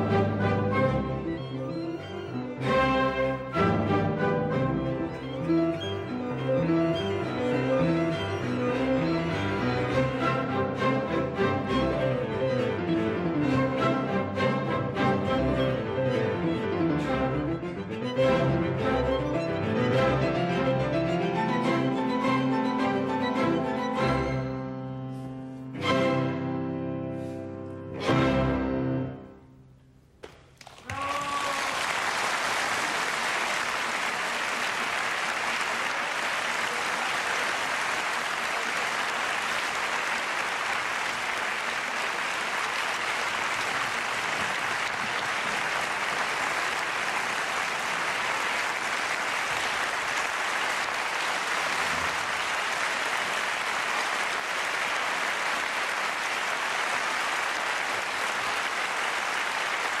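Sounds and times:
audience applauding: 30.2s - 60.0s.

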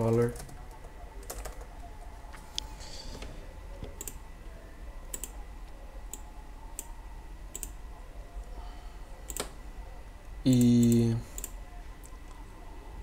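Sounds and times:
low steady hum: 0.0s - 13.0s
computer mouse clicking: 3.8s - 4.2s, 5.1s - 7.8s, 9.2s - 9.6s, 10.5s - 12.4s.

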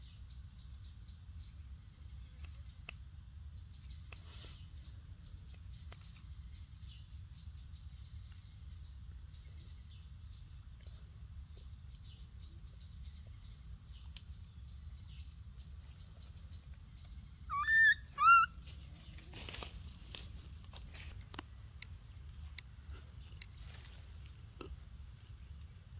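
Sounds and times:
forest birds chirping: 0.0s - 25.9s
loud rising and falling bird calls: 17.5s - 18.6s
rustle of dry leaves: 18.5s - 25.9s.

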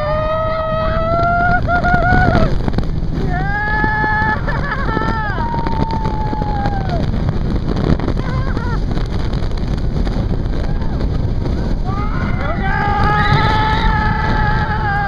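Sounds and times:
riders screaming: 0.0s - 7.1s, 10.5s - 15.0s
wind and ride rush: 0.0s - 15.0s.

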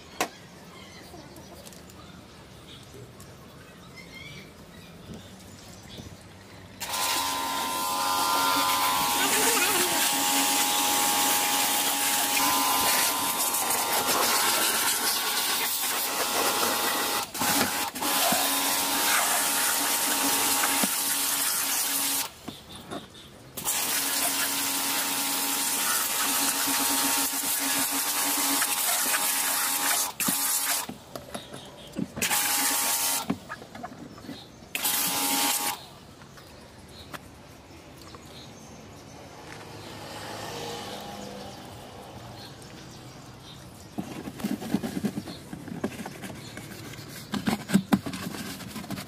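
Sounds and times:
pressure washer motor humming: 6.8s - 22.3s, 23.6s - 30.9s, 32.2s - 33.4s, 34.8s - 35.8s.

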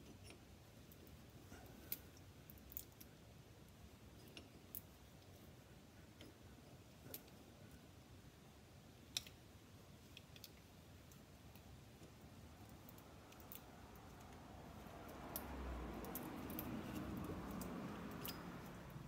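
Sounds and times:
light clicks of clamp bolts: 15.1s - 19.0s.

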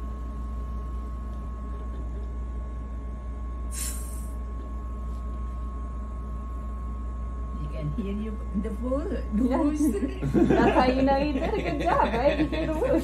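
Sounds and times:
steady hum with high tone: 0.0s - 13.0s
whoosh of exhaled air: 3.7s - 4.4s.

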